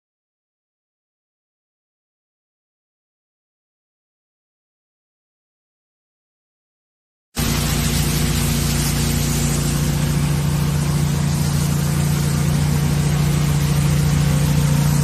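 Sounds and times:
engine and pump humming: 7.4s - 15.0s
water jet hissing: 7.4s - 15.0s.

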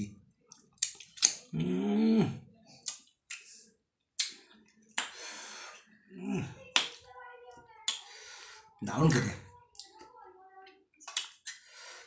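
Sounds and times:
man chewing with lip smacks: 0.5s - 1.6s, 2.8s - 3.6s.

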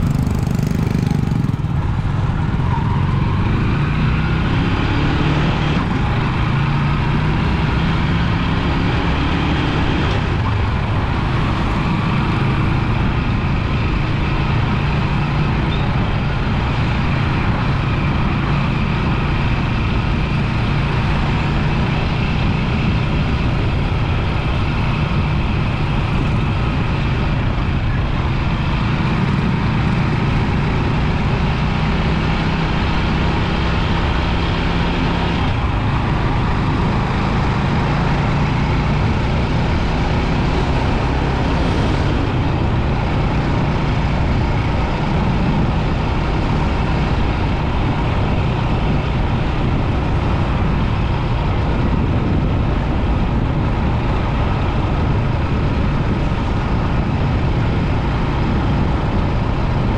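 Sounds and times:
motorbike engine running: 0.0s - 3.9s
rushing road noise: 0.0s - 59.9s.

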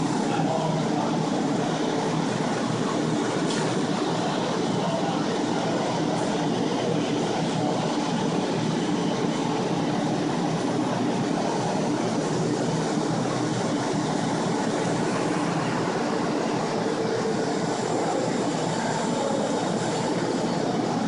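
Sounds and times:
air mover fans whirring: 0.0s - 21.0s.

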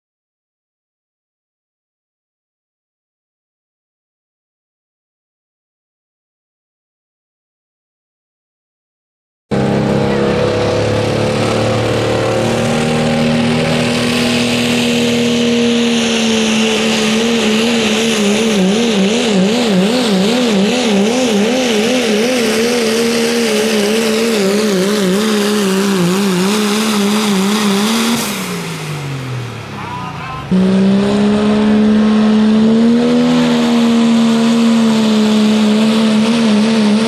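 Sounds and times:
truck engine at full throttle: 9.5s - 37.0s.

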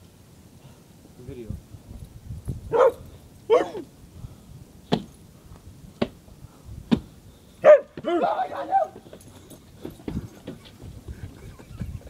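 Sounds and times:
dog barking: 2.7s - 3.8s, 7.6s - 9.0s.

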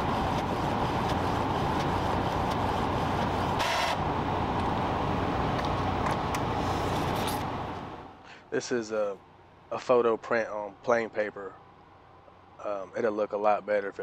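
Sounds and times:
inkjet printer whirring: 0.0s - 4.0s.

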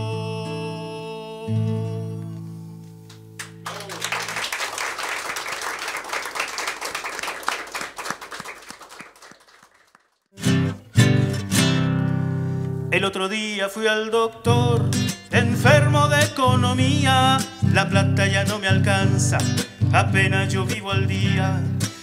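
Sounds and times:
applause: 3.4s - 10.3s
acoustic guitar chords ringing: 10.4s - 13.1s, 14.5s - 22.0s.

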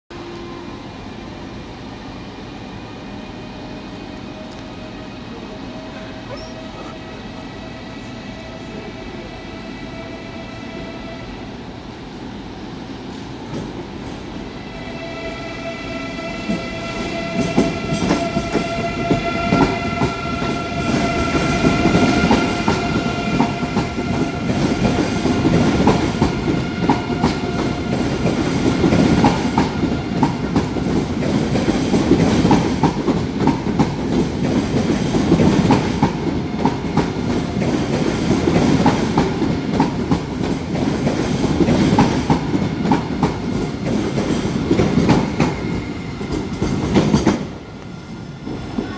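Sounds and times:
train whining tones: 2.2s - 11.9s, 14.3s - 48.9s
train wheels clattering over rails: 16.5s - 47.7s.

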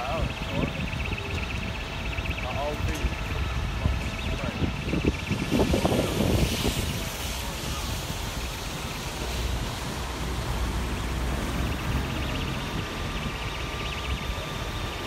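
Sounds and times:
faint steady whine: 0.0s - 15.0s
wind buffeting microphone: 0.0s - 15.0s.

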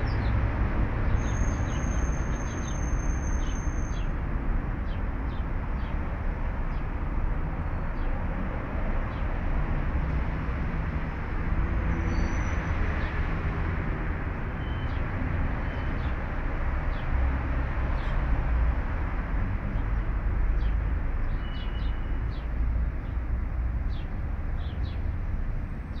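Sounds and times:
bird chirps: 1.1s - 4.1s, 20.6s - 22.5s.

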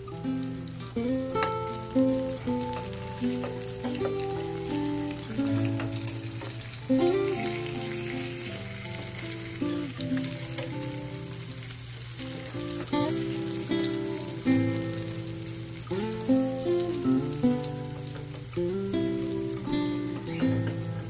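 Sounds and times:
background music: 0.0s - 11.4s
fish sizzling in oil: 0.0s - 21.0s.

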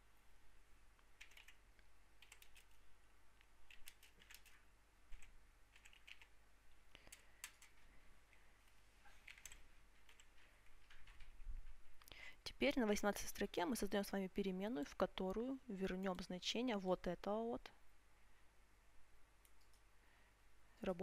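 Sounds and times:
keyboard typing: 1.2s - 1.6s, 2.2s - 2.8s, 3.6s - 6.4s, 7.0s - 7.8s, 9.2s - 11.8s.

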